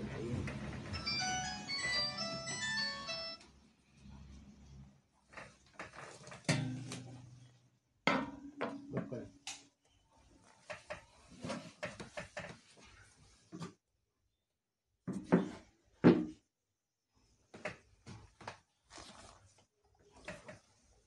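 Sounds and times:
handling knocks and rustles: 10.4s - 13.8s.

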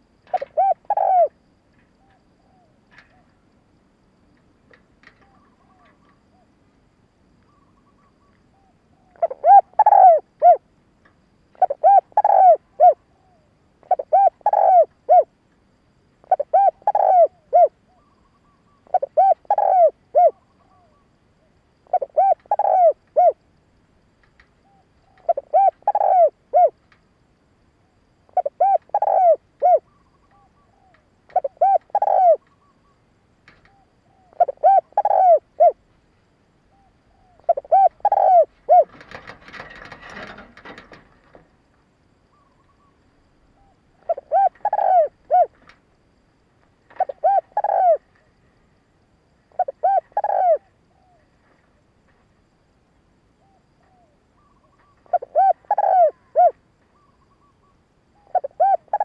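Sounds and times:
dove cooing: 0.0s - 1.4s, 5.1s - 6.5s, 7.5s - 10.7s, 11.6s - 15.3s, 16.2s - 21.0s, 21.8s - 23.4s, 24.6s - 26.8s, 28.3s - 32.9s, 33.7s - 35.8s, 36.7s - 41.0s, 43.6s - 45.7s, 46.9s - 48.1s, 49.5s - 51.3s, 53.4s - 59.0s
rustling: 38.5s - 41.5s.

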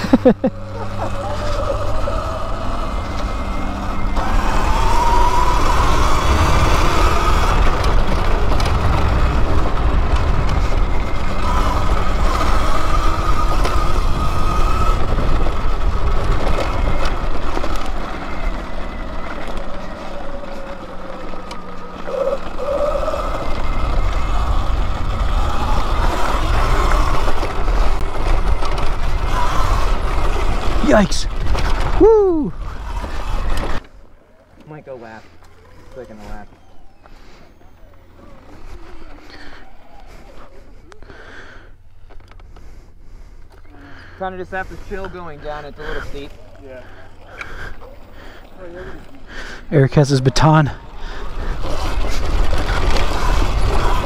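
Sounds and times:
electric motor whining: 0.0s - 54.0s
wind buffeting microphone: 0.9s - 19.4s, 22.5s - 33.8s, 50.8s - 54.0s.

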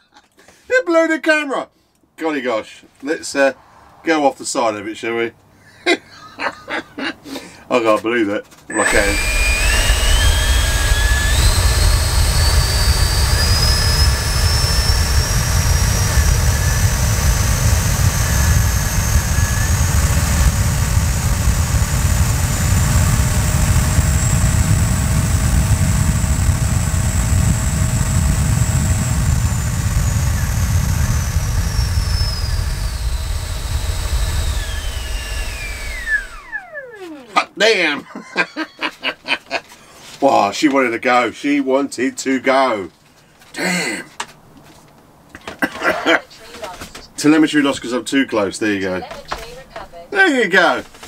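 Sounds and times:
rush of air: 3.4s - 4.7s
electric ducted fan whine: 8.7s - 37.9s.

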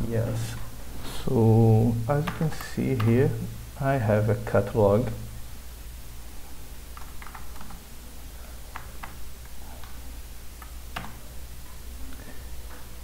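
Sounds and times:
low steady hum: 0.0s - 13.0s
keyboard keys tapping: 7.0s - 7.8s.

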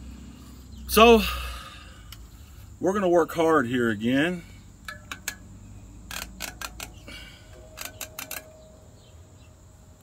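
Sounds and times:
spoke wrench clicking: 4.8s - 5.5s, 6.1s - 8.6s
faint metallic ring: 6.9s - 10.0s.

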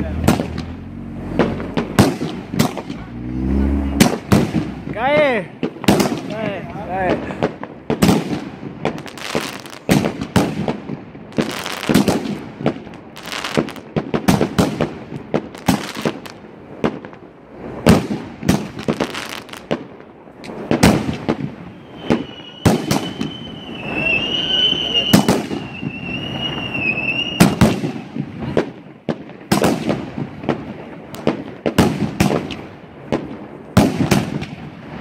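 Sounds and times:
fireworks bangs: 0.0s - 35.0s
fireworks crackling: 0.0s - 35.0s
steady high whistle: 21.7s - 27.6s.

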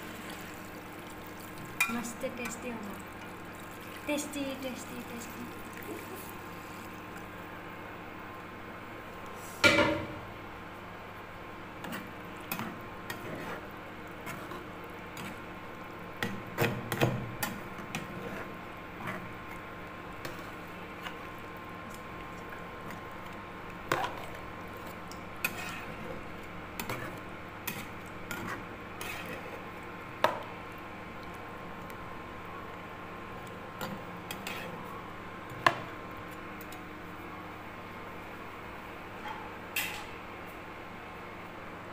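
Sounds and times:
metal spatula scraping a pan: 25.4s - 26.0s.

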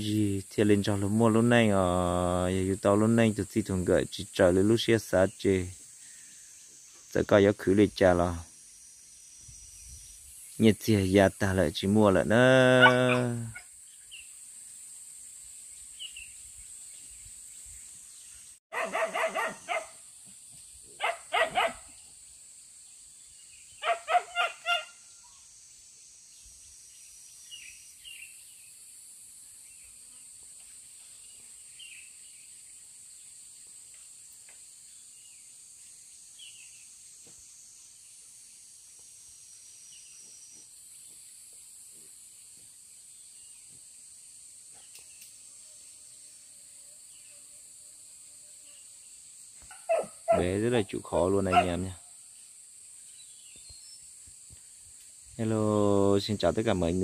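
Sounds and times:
dog barking: 12.8s - 13.4s, 18.7s - 20.0s, 21.0s - 21.9s, 23.8s - 24.9s, 49.7s - 50.5s, 51.5s - 51.8s.

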